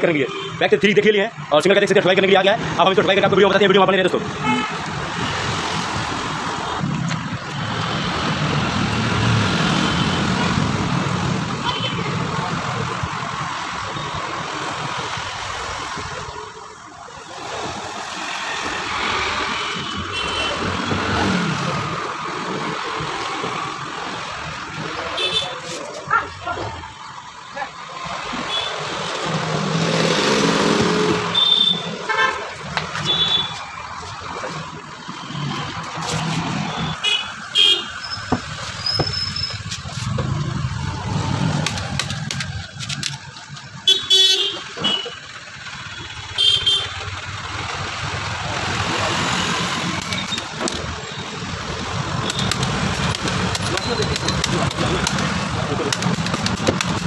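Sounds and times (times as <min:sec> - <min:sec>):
road traffic passing: 0:00.0 - 0:57.0
vehicle horn toots: 0:30.9 - 0:32.4, 0:43.9 - 0:45.2, 0:46.3 - 0:47.0.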